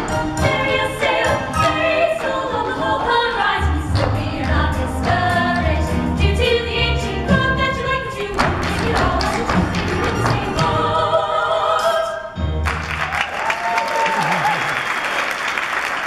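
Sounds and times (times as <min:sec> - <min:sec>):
girls singing in harmony: 0:00.2 - 0:12.3.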